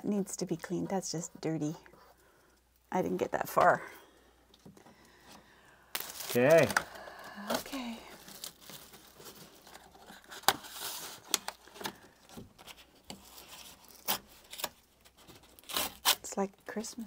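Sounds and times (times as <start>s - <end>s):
rustling: 4.6s - 17.0s.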